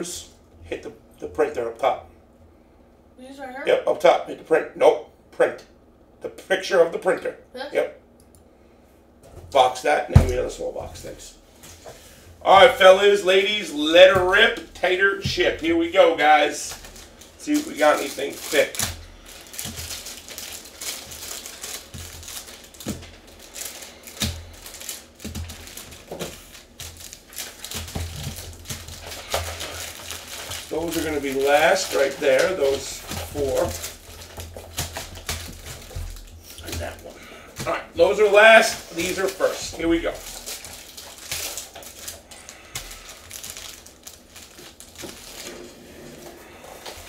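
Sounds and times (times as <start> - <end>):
foil packs crinkling: 10.2 - 47.0
cards rustling and clicking: 16.6 - 45.8.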